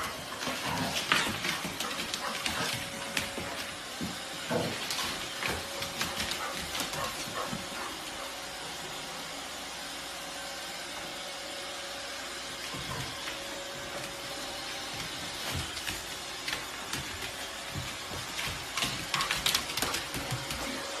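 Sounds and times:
puppy paws thumping: 14.8s - 20.9s
claws clicking on hardwood floor: 15.4s - 20.8s.

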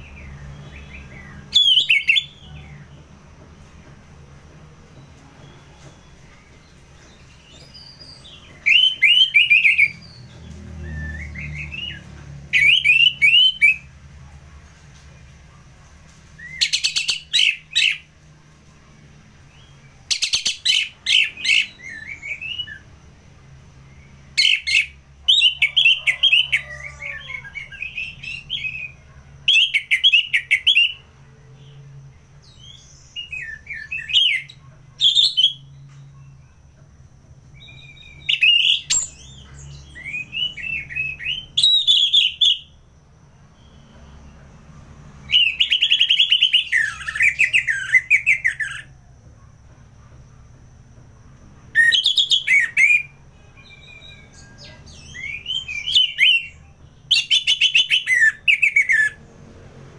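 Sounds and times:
faint low hum: 13.5s - 57.5s.

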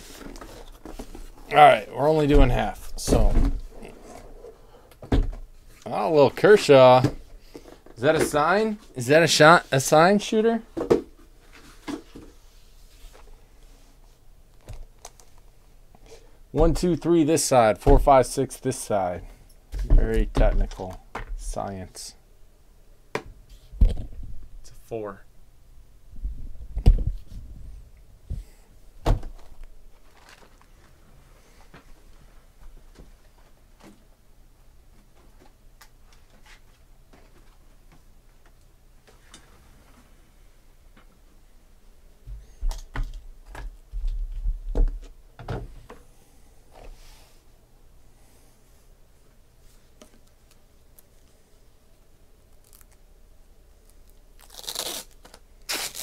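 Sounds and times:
crinkling rustle: 29.4s - 32.2s, 52.5s - 53.0s, 53.8s - 56.0s.

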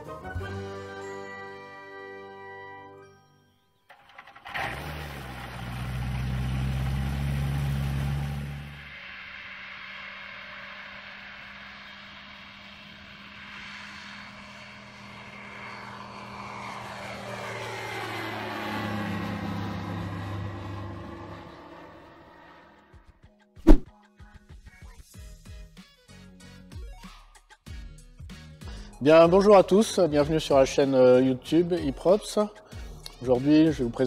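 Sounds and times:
light aircraft engine and propeller drone: 4.0s - 23.0s.

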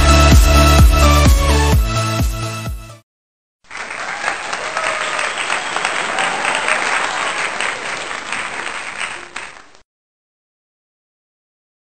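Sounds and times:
audience applause: 3.7s - 9.8s.

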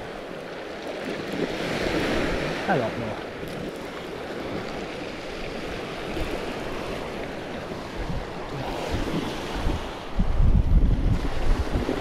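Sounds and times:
waves washing over shingle: 0.0s - 12.0s
wind buffeting microphone: 3.4s - 12.0s.

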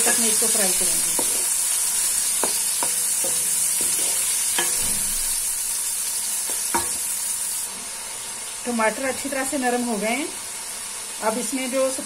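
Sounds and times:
onion and tomato sizzling in oil: 0.0s - 12.0s
spatula tapping and scraping metal pan: 1.1s - 1.6s, 2.4s - 5.0s, 6.4s - 7.0s.

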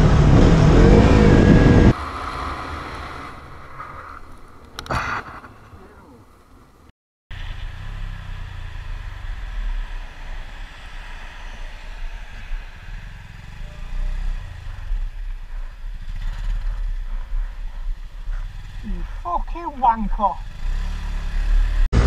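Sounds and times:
wind noise on microphone: 0.0s - 2.0s
motorcycle engine running: 7.4s - 22.0s.

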